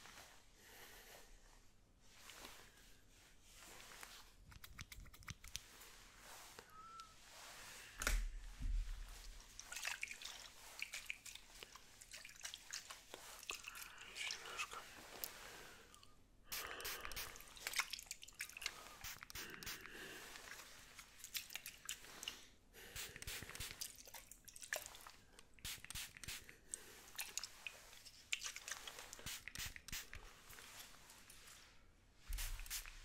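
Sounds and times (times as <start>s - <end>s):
hands crackling and clicking: 4.4s - 5.7s
spray bottle spraying: 16.5s - 17.4s, 19.0s - 19.9s, 22.9s - 23.9s, 25.6s - 26.5s, 29.1s - 30.3s, 32.3s - 33.0s.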